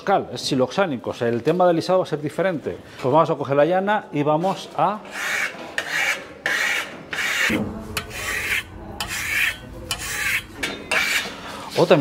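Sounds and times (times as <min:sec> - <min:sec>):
trowel scraping coating: 0:05.0 - 0:11.9.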